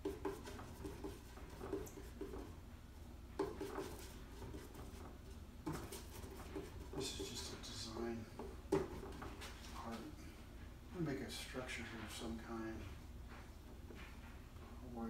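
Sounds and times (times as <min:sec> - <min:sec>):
brush tapping and scraping palette: 0:00.0 - 0:02.6, 0:03.3 - 0:10.1.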